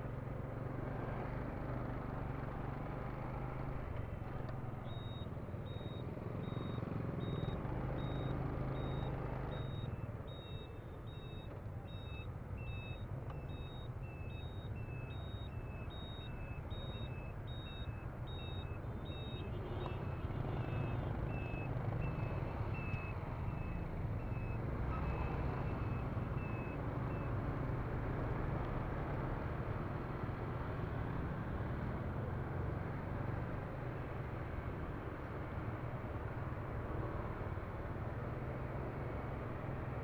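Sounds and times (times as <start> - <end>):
road traffic: 0.0 - 40.0
vehicle engine: 0.0 - 40.0
high electronic beeps: 4.9 - 19.4.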